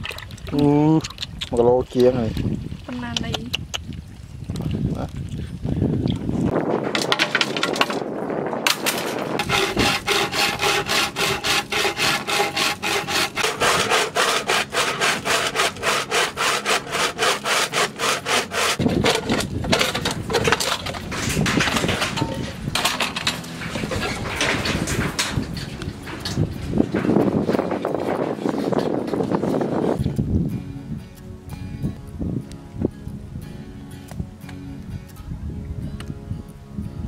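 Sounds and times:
hand saw cutting bamboo: 0:08.7 - 0:27.6.

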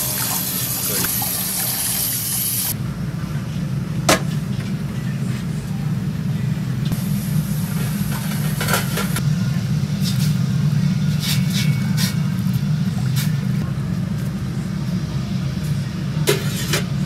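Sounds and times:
tap water running into sink: 0:00.0 - 0:02.7
gas burner roaring: 0:00.0 - 0:17.0.

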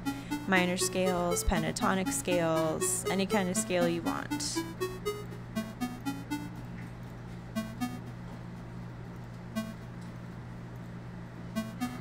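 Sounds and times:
synthesized blips: 0:00.0 - 0:06.7, 0:07.6 - 0:08.1, 0:09.6 - 0:09.9, 0:11.6 - 0:12.0.

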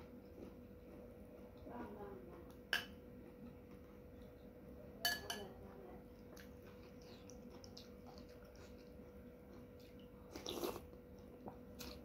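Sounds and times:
faint steady hum: 0:00.0 - 0:12.0
metal spoon clinking ceramic bowl: 0:05.0 - 0:05.5.

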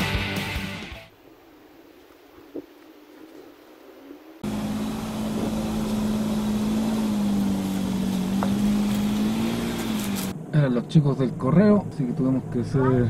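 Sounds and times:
car engine idling: 0:04.4 - 0:10.4.

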